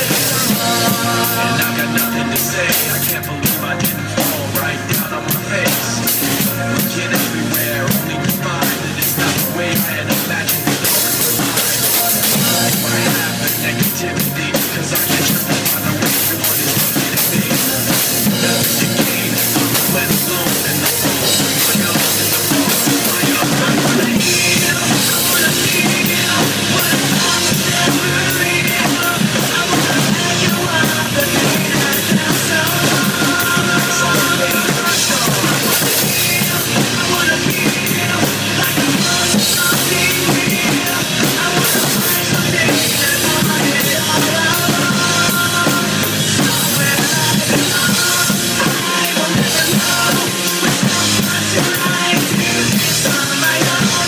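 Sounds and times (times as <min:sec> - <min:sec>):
rock drum kit playing: 0:00.0 - 0:54.0.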